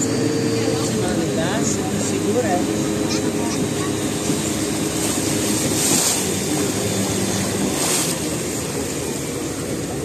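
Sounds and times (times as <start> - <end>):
motorboat engine running: 0.0 - 10.0
water rushing and splashing: 0.0 - 10.0.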